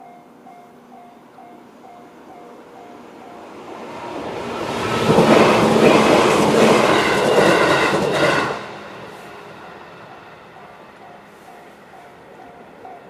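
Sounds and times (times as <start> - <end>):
level crossing warning bell dinging: 0.0 - 3.9, 9.2 - 13.0
electric train passing: 0.0 - 13.0.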